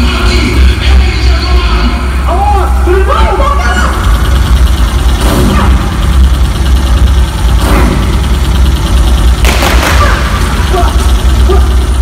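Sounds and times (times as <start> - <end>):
loud low engine rumble: 0.0 - 12.0.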